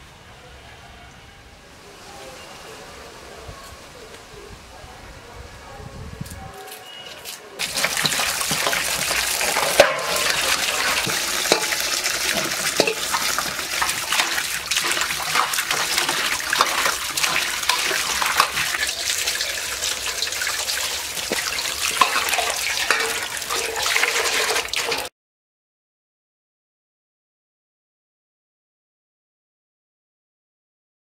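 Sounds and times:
water pouring and splashing: 0:07.2 - 0:25.1
vegetables knocking in metal colander: 0:07.6 - 0:25.1.

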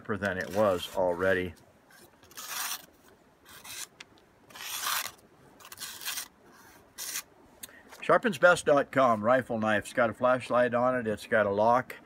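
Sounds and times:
knife slicing paper: 0:02.2 - 0:02.9, 0:03.5 - 0:03.9, 0:04.5 - 0:07.3.

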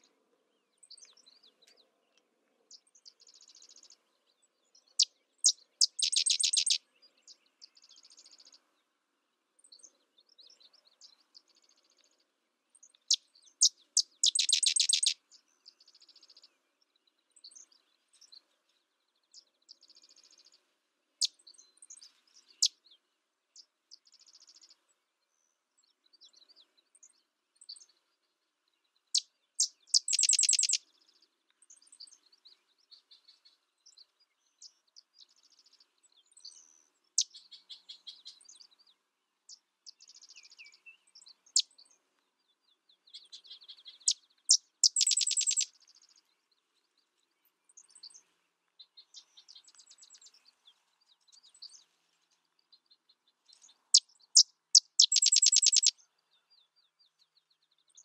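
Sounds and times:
faint bird chattering: 0:05.4 - 0:06.8, 0:13.1 - 0:15.2, 0:29.6 - 0:30.8, 0:43.4 - 0:45.7, 0:54.8 - 0:55.9
bird chip notes and trill: 0:05.8 - 0:06.8, 0:14.2 - 0:15.2, 0:30.0 - 0:30.8, 0:44.8 - 0:45.6, 0:54.8 - 0:55.9.

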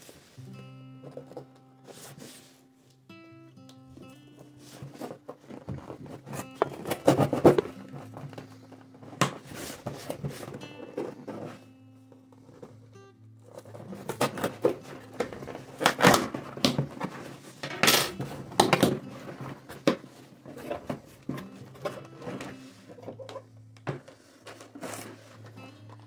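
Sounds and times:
cardboard flaps rustling: 0:04.4 - 0:12.8
packing tape ripping: 0:13.5 - 0:19.0.

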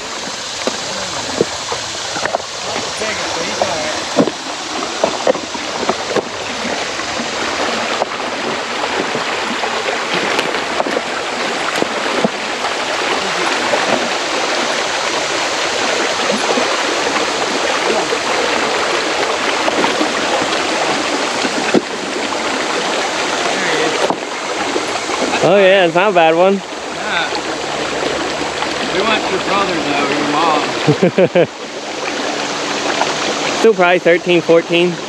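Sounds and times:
creek water rushing over rocks: 0:00.0 - 0:35.0.

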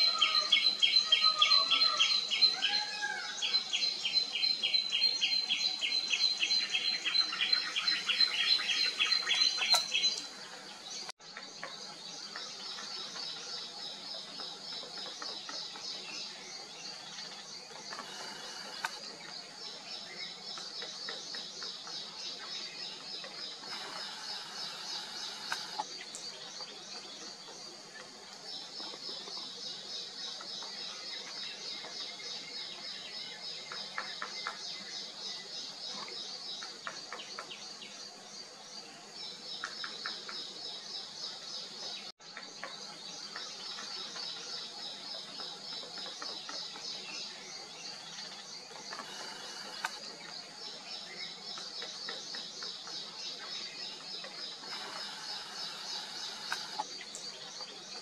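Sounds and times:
insects chorus pulsing: 0:23.4 - 0:26.5, 0:47.0 - 0:52.2, 0:52.9 - 0:58.0.

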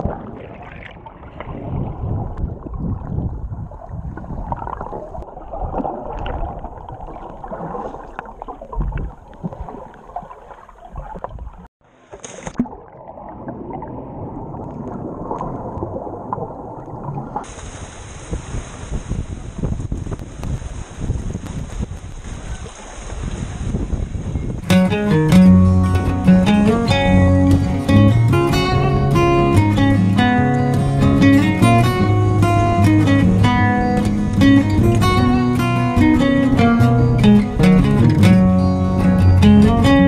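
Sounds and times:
soft knocks of swimming: 0:00.0 - 0:24.2
muffled underwater churning: 0:00.0 - 0:39.4
wind hiss on microphone: 0:17.4 - 0:24.7.

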